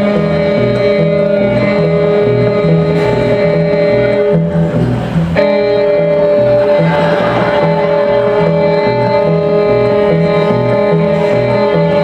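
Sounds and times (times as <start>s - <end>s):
band backing: 0.0s - 12.0s
fiddle bowing long notes: 0.0s - 12.0s
low beat: 0.0s - 12.0s.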